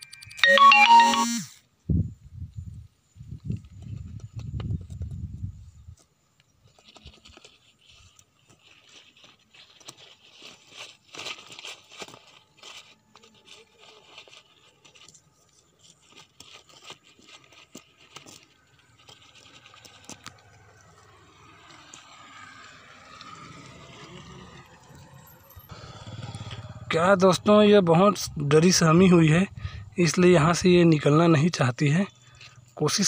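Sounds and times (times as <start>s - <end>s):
leaves rustling: 6.6s - 24.2s.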